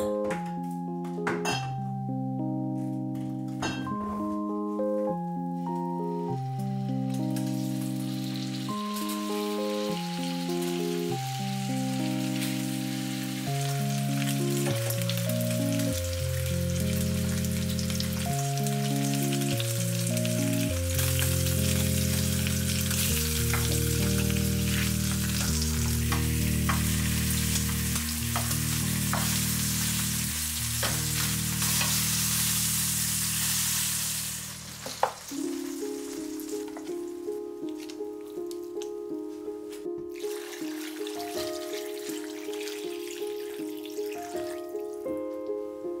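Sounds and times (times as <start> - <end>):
soft background music: 0.0 - 46.0
meat sizzling in a frying pan: 7.2 - 36.9, 40.2 - 45.1.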